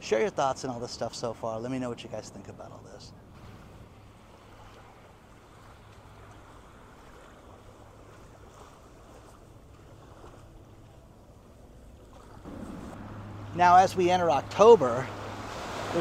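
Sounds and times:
steady low hum: 0:01.8 - 0:16.0
small waves lapping on sand: 0:03.3 - 0:16.0.

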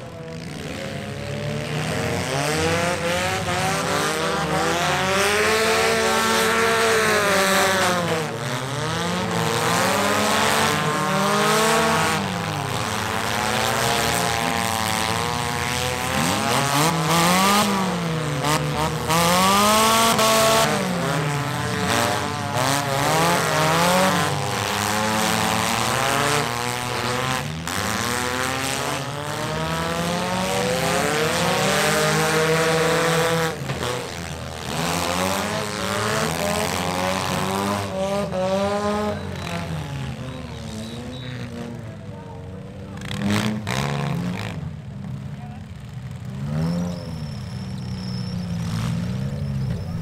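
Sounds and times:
car engines revving: 0:00.0 - 0:50.0.

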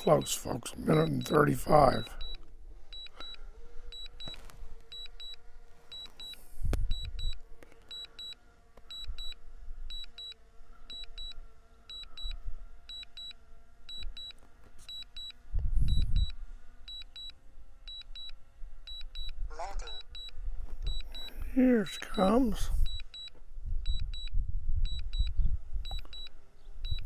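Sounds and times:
drone propellers humming: 0:00.0 - 0:27.0
short high beeps: 0:20.9 - 0:23.3.

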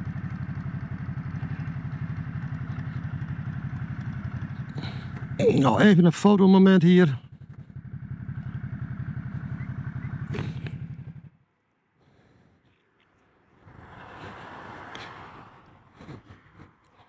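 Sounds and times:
motorcycle engine idling: 0:00.0 - 0:12.8.

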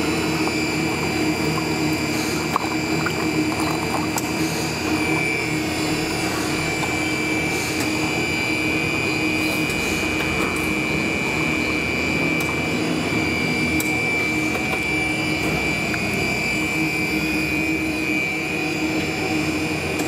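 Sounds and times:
machine hum with high whine: 0:00.0 - 0:20.0.

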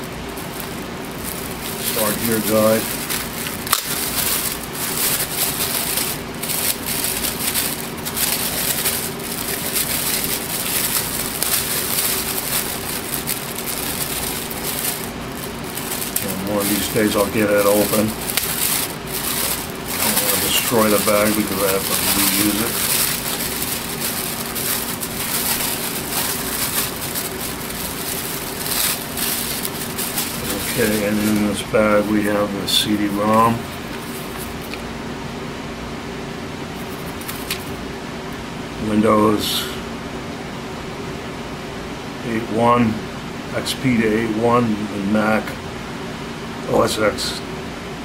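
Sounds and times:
plastic bag crinkling: 0:00.0 - 0:34.9, 0:36.8 - 0:37.8
faint low hum: 0:00.0 - 0:40.1.

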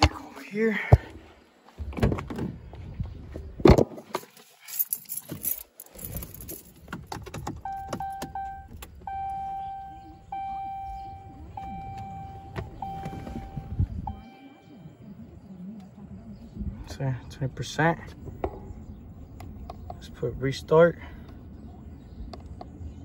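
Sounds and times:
keys jingling: 0:04.5 - 0:09.2
truck door opening: 0:06.7 - 0:14.3
vehicle warning chime: 0:07.6 - 0:15.0.

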